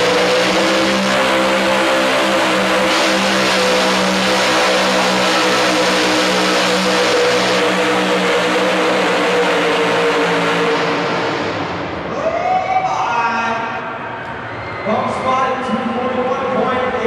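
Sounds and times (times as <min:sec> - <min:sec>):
truck engine running flat out: 0:00.0 - 0:12.2.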